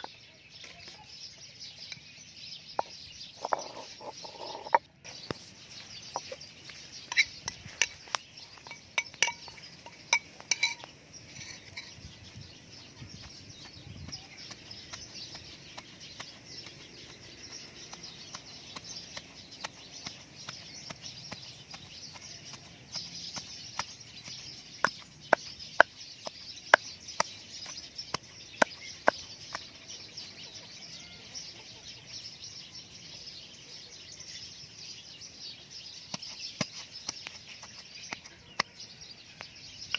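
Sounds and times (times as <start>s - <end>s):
pestle pounding in stone mortar: 12.8s - 29.8s, 36.1s - 38.7s.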